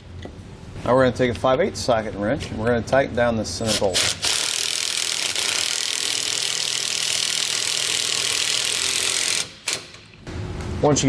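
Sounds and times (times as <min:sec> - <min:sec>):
electric ratchet running: 0:03.9 - 0:10.0.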